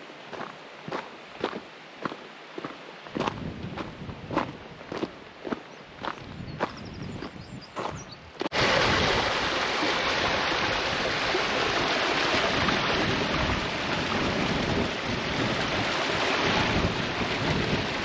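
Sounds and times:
stream splashing over boulders: 8.4s - 18.0s.

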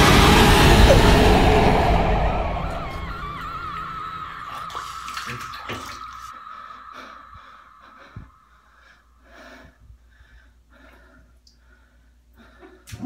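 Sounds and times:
held high tone: 0.0s - 9.1s
water sloshing: 4.4s - 6.5s.

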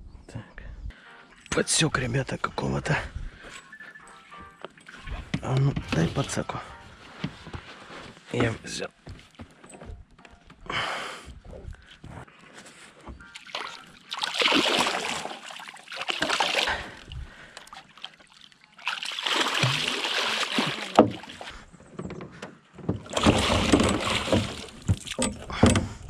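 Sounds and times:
fish splashing in water: 13.3s - 21.5s, 23.1s - 25.2s.

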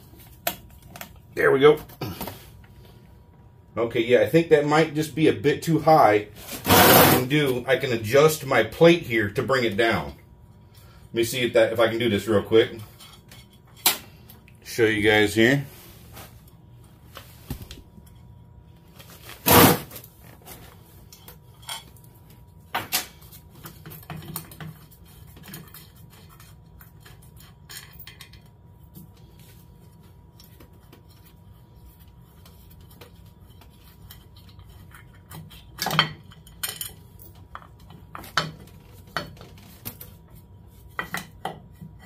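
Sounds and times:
metal parts clinking and clanking: 27.0s - 28.5s.

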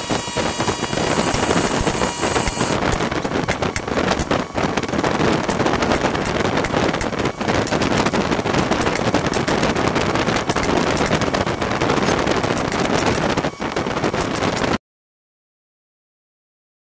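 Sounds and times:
nail gun firing: 0.0s - 2.8s.

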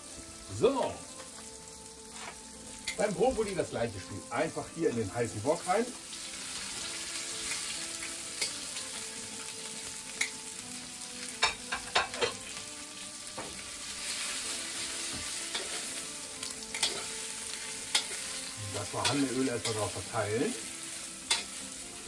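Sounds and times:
broccoli sizzling in hot oil: 0.0s - 22.0s
metal tongs clinking on wok: 2.8s - 3.0s, 8.4s - 8.7s, 11.4s - 12.4s, 15.4s - 17.3s, 17.9s - 20.6s, 21.2s - 21.6s.

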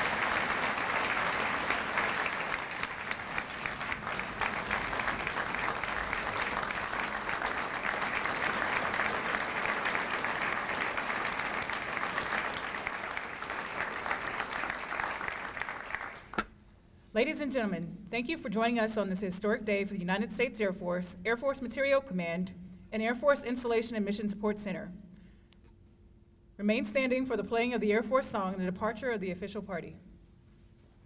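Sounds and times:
audience applauding: 0.0s - 16.4s.

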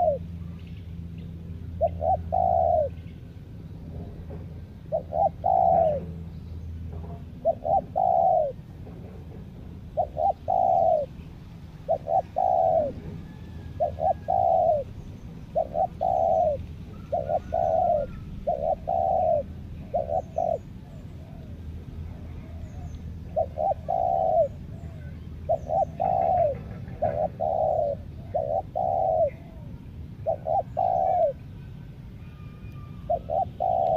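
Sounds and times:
dove cooing: 0.0s - 0.3s, 1.7s - 3.0s, 4.8s - 6.2s, 7.0s - 8.7s, 9.9s - 33.9s
faint bird chirps: 11.9s - 33.9s.

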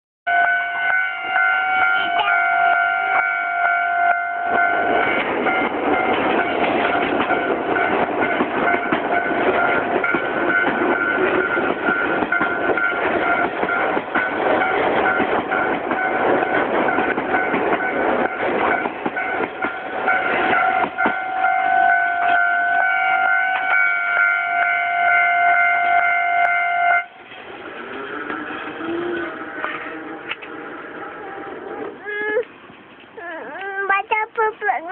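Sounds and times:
level crossing bell ringing: 0.3s - 16.2s, 16.9s - 27.1s
train passing on rails: 0.3s - 34.9s.

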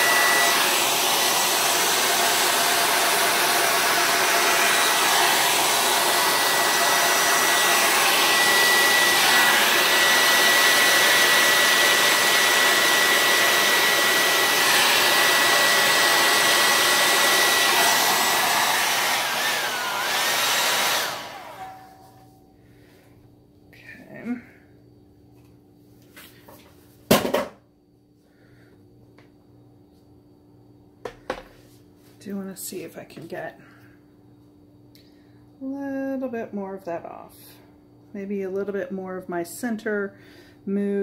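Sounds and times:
hair dryer running: 0.0s - 22.4s.

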